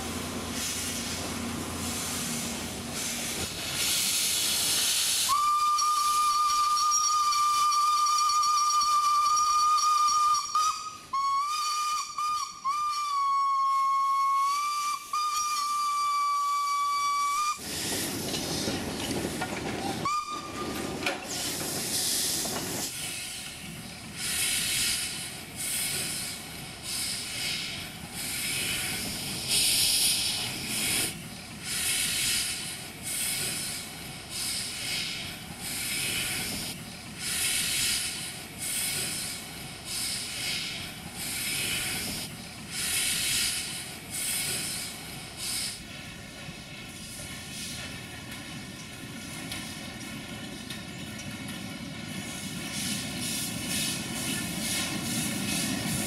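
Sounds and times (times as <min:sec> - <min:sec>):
hissing steam: 0:00.0 - 0:50.3, 0:51.8 - 0:56.0
steam locomotive whistle: 0:05.3 - 0:17.6, 0:19.9 - 0:20.8.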